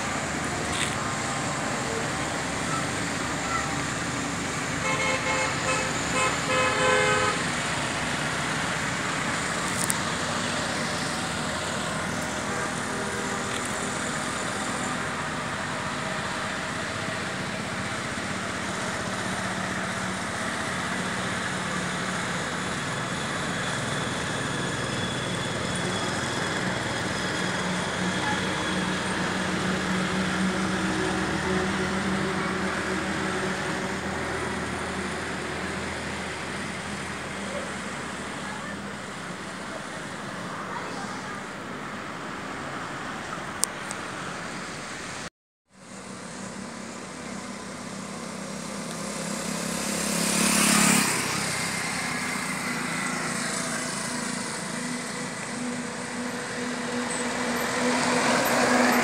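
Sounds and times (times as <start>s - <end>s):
heavy vehicle engine hum: 0.0s - 59.0s
highway traffic noise: 0.0s - 59.0s
vehicle horn toots: 4.8s - 7.5s.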